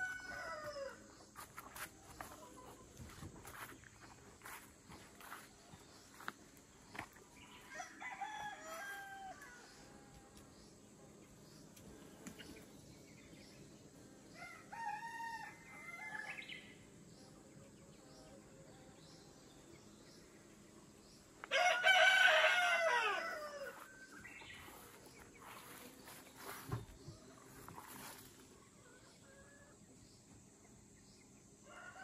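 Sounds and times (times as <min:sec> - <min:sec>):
rooster crowing: 0:00.0 - 0:01.1, 0:07.6 - 0:09.8, 0:14.4 - 0:16.5, 0:21.4 - 0:24.2, 0:31.7 - 0:32.0.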